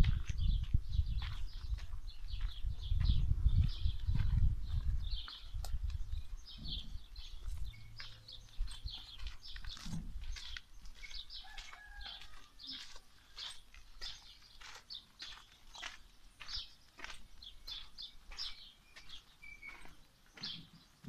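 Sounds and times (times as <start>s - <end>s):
wind rumble on microphone: 0.0s - 10.6s
small birds chirping: 0.0s - 21.0s.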